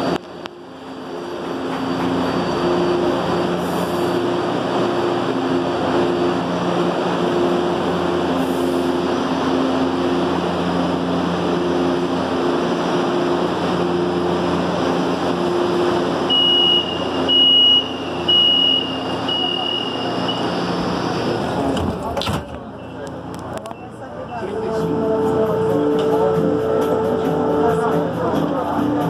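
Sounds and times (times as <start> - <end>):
metro train equipment hum: 0.0 - 29.0
high door warning beeps: 16.3 - 20.8.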